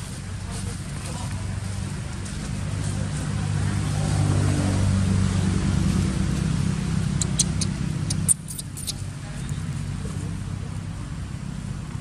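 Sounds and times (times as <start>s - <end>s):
sharp high clicks: 7.2s - 9.0s.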